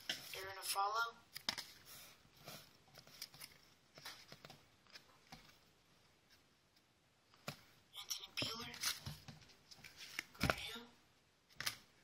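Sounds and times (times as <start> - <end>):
cardboard cards rustling and clicking: 1.3 - 5.6, 8.4 - 10.7, 11.5 - 11.9.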